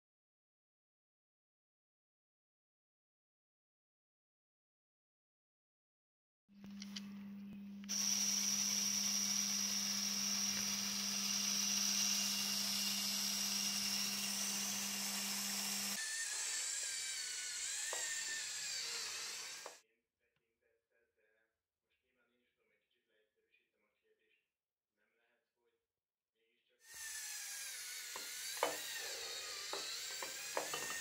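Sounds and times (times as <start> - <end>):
small electric motor whining: 7.7 - 19.8, 26.9 - 31.0.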